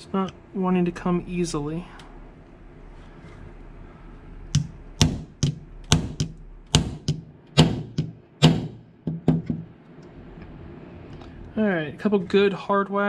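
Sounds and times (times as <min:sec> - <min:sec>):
hammer tapping pin punch: 0:04.6 - 0:09.6.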